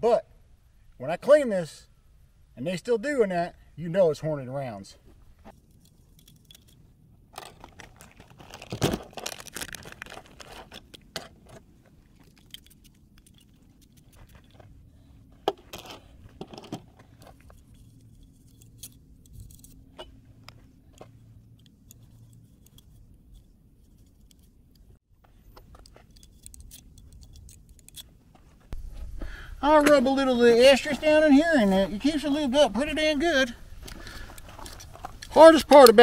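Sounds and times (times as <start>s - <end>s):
rifle parts clicking and clattering: 5.5s - 14.8s, 15.4s - 28.2s.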